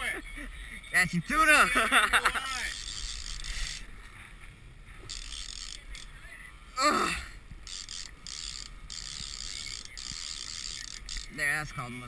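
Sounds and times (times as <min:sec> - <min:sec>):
fishing reel ratcheting: 0:02.1 - 0:03.9, 0:05.0 - 0:06.2, 0:07.6 - 0:11.6.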